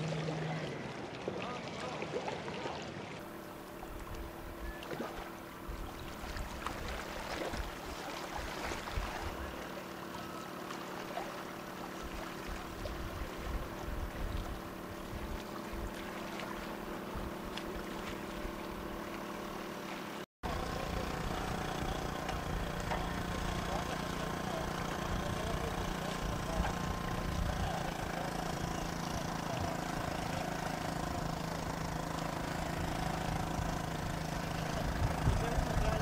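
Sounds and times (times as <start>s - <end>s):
small outboard motor running: 0.0s - 36.0s
wind buffeting microphone: 34.8s - 36.0s.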